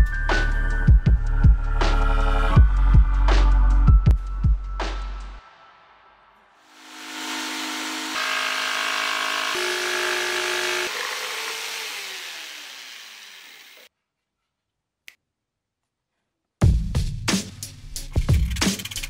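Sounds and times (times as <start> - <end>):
electric jigsaw cutting pipe: 6.7 - 13.9.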